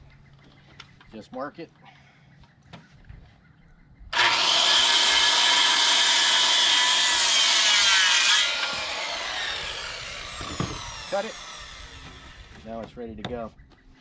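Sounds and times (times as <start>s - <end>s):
circular saw cutting wood: 4.2s - 12.7s
saw blade winding down whine: 4.2s - 12.7s.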